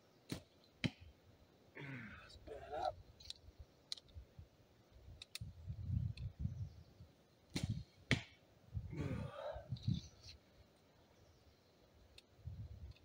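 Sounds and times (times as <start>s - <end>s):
sharp clicks: 5.2s - 5.5s.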